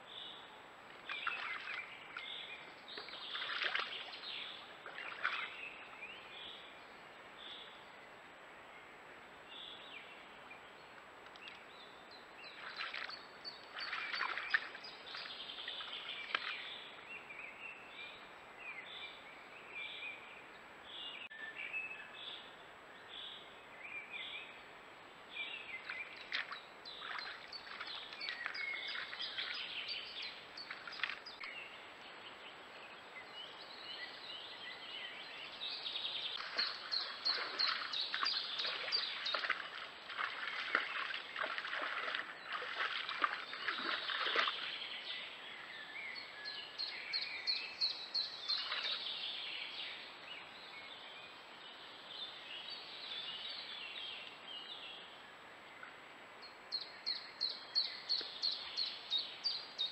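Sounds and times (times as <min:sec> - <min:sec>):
birds singing and calling: 0:01.1 - 0:06.7, 0:11.3 - 0:19.2, 0:25.4 - 0:31.8, 0:32.8 - 0:51.4, 0:56.4 - 0:59.9.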